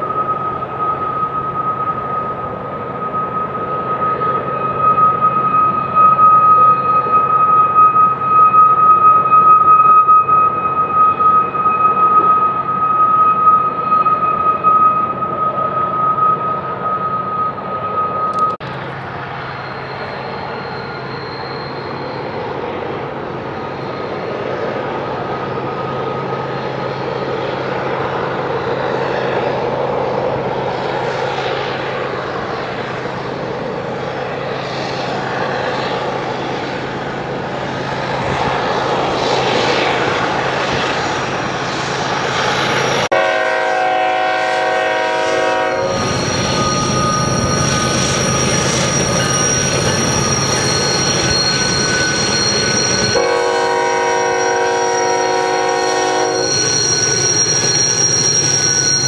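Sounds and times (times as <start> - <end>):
diesel locomotives rumbling: 0.0 - 59.0
high wheel squeal: 0.0 - 59.0
locomotive air horn: 43.1 - 46.1, 53.1 - 56.6.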